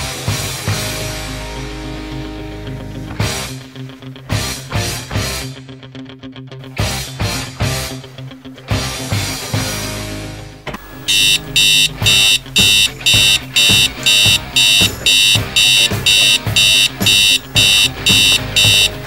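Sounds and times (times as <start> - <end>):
background music: 0.0 - 19.0
digital alarm clock beeping: 10.8 - 19.0.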